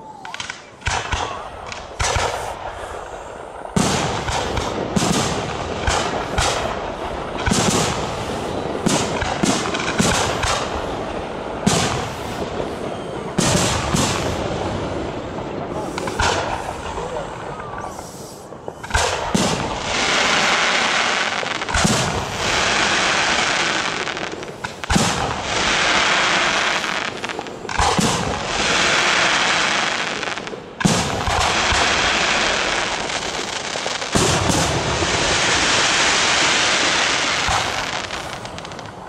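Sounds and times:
crackling firework hiss: 0.0s - 39.0s
firework shells bursting: 0.2s - 39.0s.

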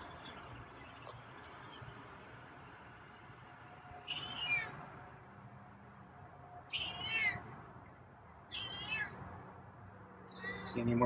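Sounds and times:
cat meowing: 4.1s - 4.7s, 6.7s - 7.4s, 8.5s - 9.2s.

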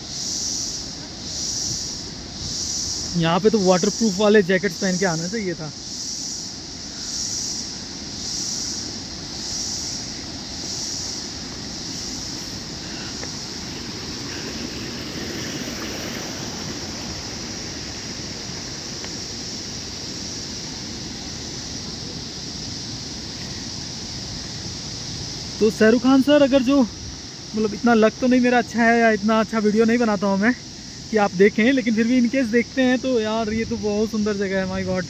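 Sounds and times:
high insect buzz: 0.0s - 35.0s
waterfall roaring: 8.8s - 26.7s.

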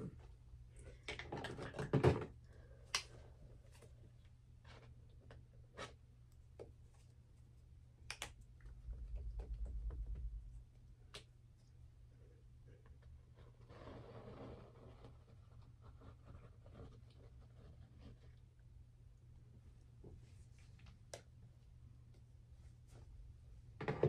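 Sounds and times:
paint supplies clicking and rattling: 0.9s - 2.4s
steady low hum: 2.3s - 13.6s
low rumble: 8.6s - 11.0s.

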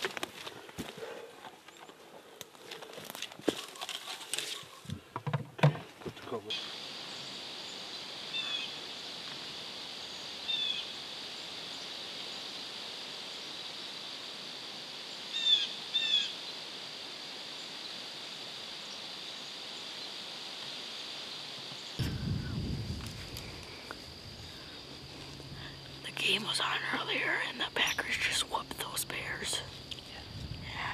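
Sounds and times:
insect buzz: 0.0s - 30.9s.

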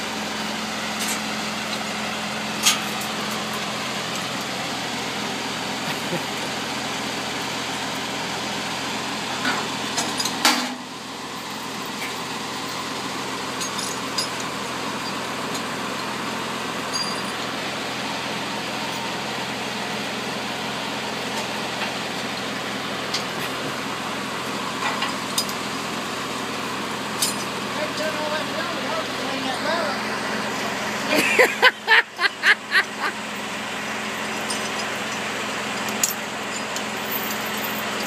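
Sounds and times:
diesel engine idling: 0.0s - 38.0s
chains clanking against logs: 13.6s - 15.2s, 16.9s - 17.4s, 27.2s - 27.6s, 34.1s - 38.0s.

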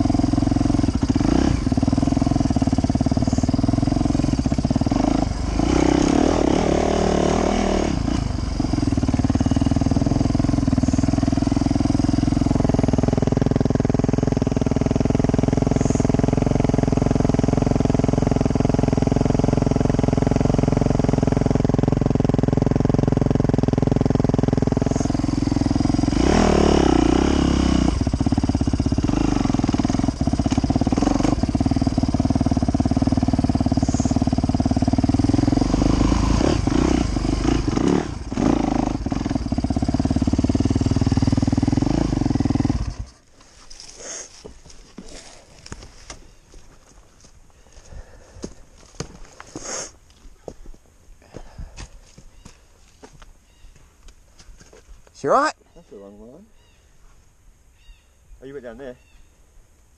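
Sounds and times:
motorcycle engine revving and idling: 0.0s - 46.7s.

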